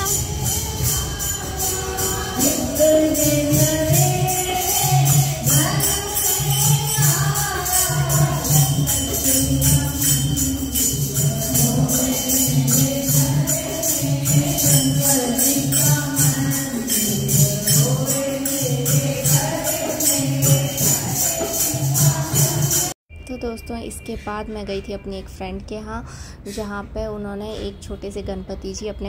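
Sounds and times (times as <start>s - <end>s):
group singing devotional song: 0.0s - 23.0s
jingling percussion: 0.0s - 24.0s.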